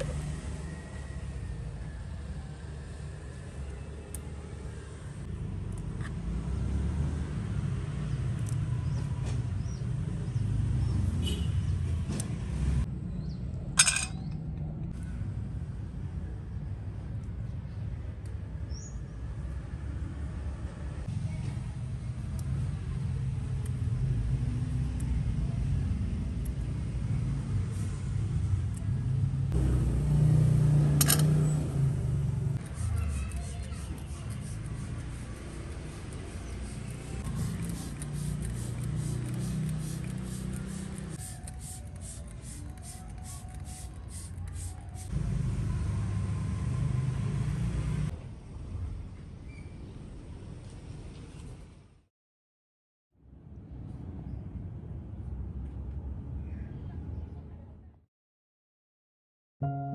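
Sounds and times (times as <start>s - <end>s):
spray bottle squirts: 32.6s - 45.1s.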